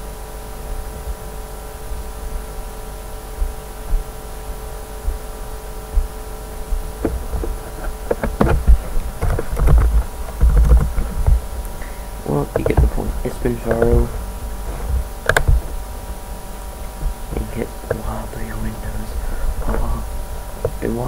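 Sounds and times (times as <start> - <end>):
electrical hum: 0.0 - 21.0
low knocks: 5.9 - 15.8
sharp clicks and knocks: 6.7 - 16.2, 19.6 - 21.0.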